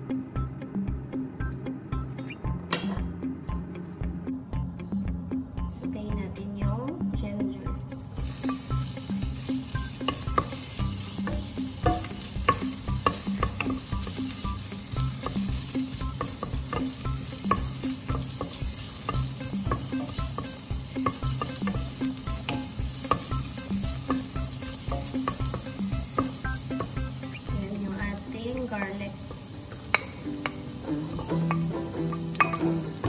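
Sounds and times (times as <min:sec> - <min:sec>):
ginger sizzling in hot oil: 0:07.8 - 0:33.0.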